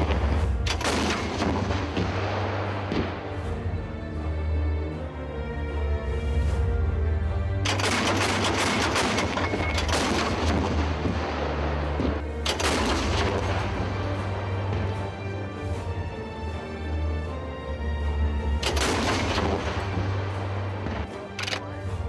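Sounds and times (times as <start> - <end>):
rapid automatic cannon fire: 0.0 - 3.2, 7.7 - 13.8, 18.6 - 19.9
background music: 0.0 - 22.0.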